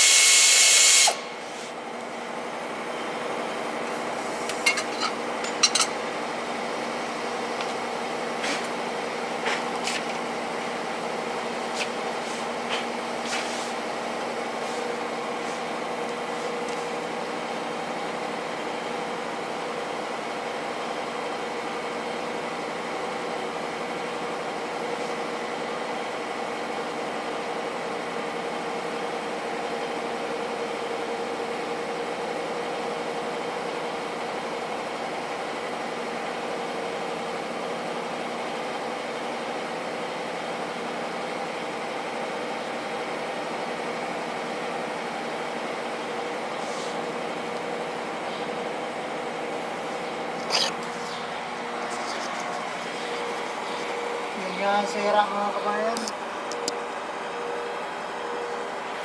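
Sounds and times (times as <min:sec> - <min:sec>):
steady machine hum: 0:00.0 - 0:27.2, 0:44.0 - 0:59.0
metal tools clinking: 0:04.6 - 0:06.0.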